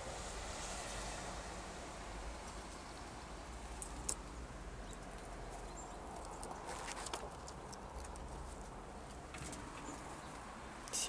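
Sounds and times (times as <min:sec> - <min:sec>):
outdoor hiss: 0:00.0 - 0:04.3, 0:10.6 - 0:11.0.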